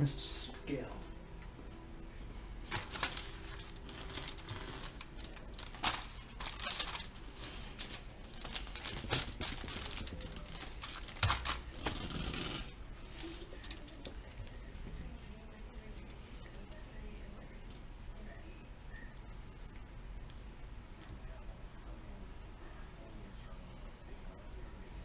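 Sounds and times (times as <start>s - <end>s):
aluminium foil crinkling: 2.6s - 17.7s.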